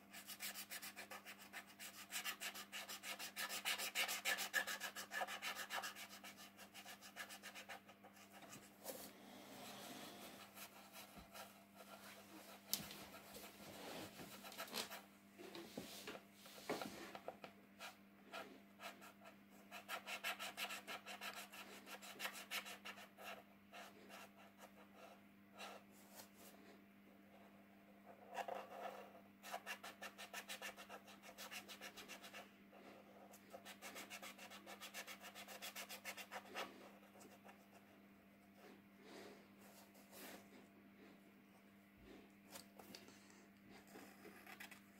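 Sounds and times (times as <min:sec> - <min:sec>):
faint low hum: 0:00.0 - 0:44.9
marker scratching on paper: 0:00.1 - 0:08.7.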